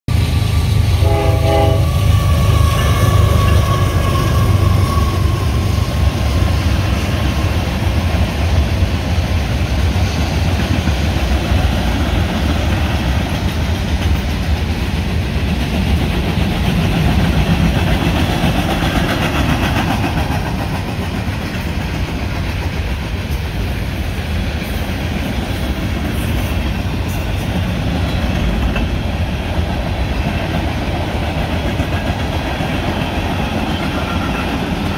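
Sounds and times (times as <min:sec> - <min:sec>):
freight cars rumbling on rails: 0:00.1 - 0:34.9
locomotive horn: 0:00.4 - 0:06.1.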